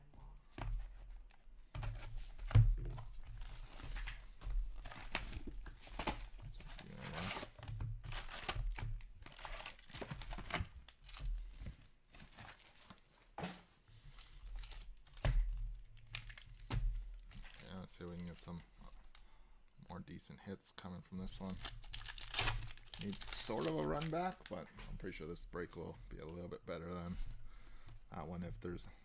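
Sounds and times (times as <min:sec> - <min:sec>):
foil packs crinkling: 0:03.4 - 0:13.0, 0:14.0 - 0:15.4, 0:21.2 - 0:25.2
plastic wrapping tearing: 0:04.8 - 0:11.3, 0:21.3 - 0:24.6.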